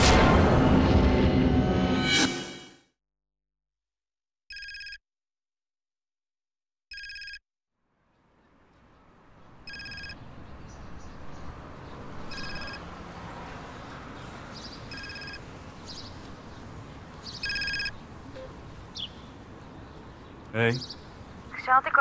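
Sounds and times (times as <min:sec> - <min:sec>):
phone ringing: 0:04.5 - 0:05.0, 0:06.9 - 0:07.4, 0:09.6 - 0:10.2, 0:12.3 - 0:12.8, 0:14.9 - 0:15.4, 0:17.4 - 0:18.6
outdoor background noise: 0:07.7 - 0:22.0
bird chirps: 0:14.2 - 0:21.4.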